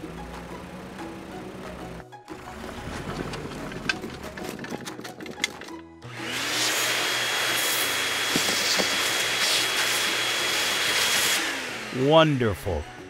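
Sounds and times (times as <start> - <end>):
hose spray hissing: 6.5 - 11.4.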